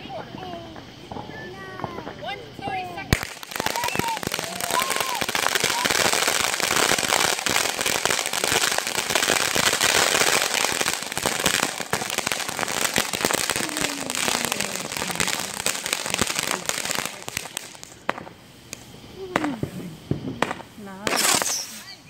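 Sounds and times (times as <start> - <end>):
firework crackling and popping: 0.0 - 22.0
firework shots bursting overhead: 0.0 - 22.0.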